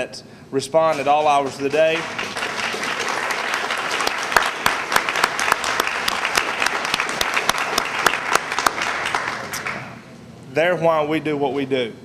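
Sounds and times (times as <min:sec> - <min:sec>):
people applauding: 0:00.9 - 0:10.0.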